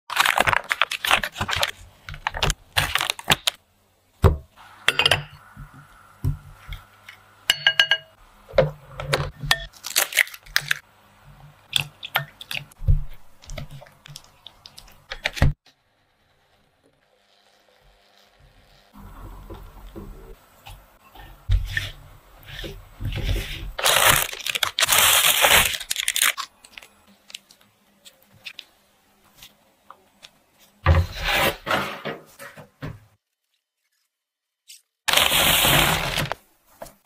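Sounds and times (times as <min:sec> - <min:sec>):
butter wrapper crinkling: 0:00.1 - 0:03.6, 0:09.7 - 0:10.8, 0:23.8 - 0:27.7.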